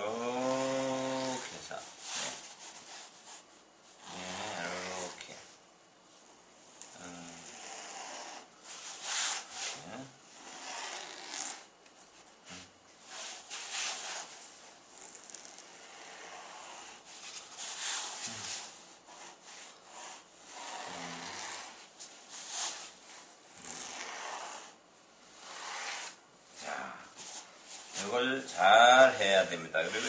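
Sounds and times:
marker scratching on foam: 7.0 - 11.7, 15.0 - 26.2, 27.2 - 30.0.

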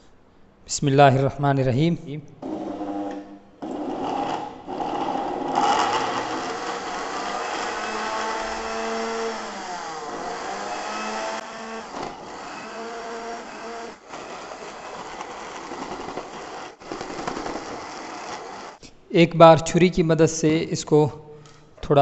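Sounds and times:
blender motor running: 2.4 - 18.8.

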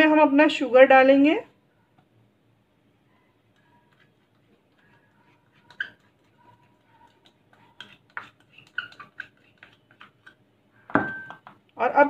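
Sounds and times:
spatula tapping glass bowl: 10.9 - 11.6.

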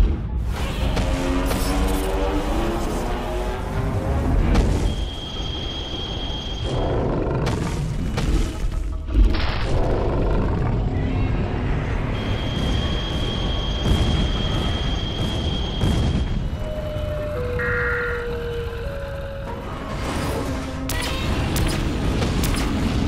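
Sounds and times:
high steady tone: 17.3 - 19.0.

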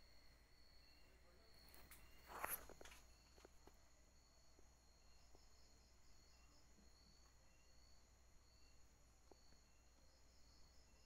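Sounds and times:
night insects chirring: 0.0 - 11.0.

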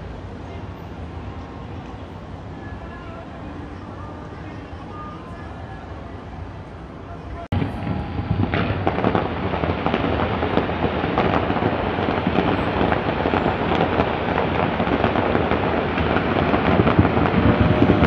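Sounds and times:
fireworks crackling: 7.3 - 18.0
sharp firework bangs: 7.5 - 18.0.

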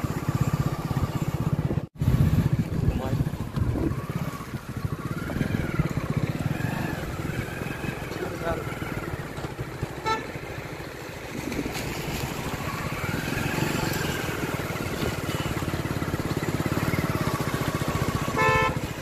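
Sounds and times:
motorcycle engine running: 0.0 - 19.0
horn beeping: 10.0 - 10.4, 18.2 - 19.0.

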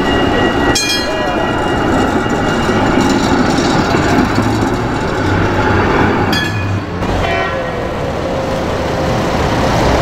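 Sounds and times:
high ringing tone: 0.0 - 5.3
tram wheels rumbling over rails: 0.0 - 10.0.

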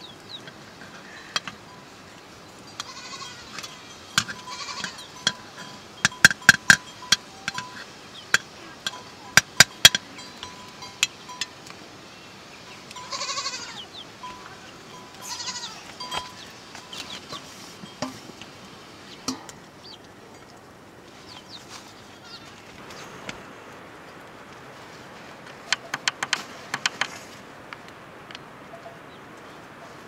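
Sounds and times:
goat bleating: 2.8 - 5.2, 13.0 - 16.2
metal ladle clicking on pot: 19.3 - 19.6.

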